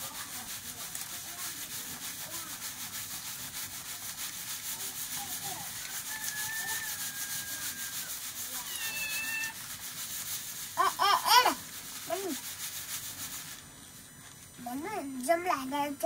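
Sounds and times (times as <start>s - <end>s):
rice rattling in metal sieve: 0.0s - 13.6s
short high-pitched calls: 6.0s - 9.6s.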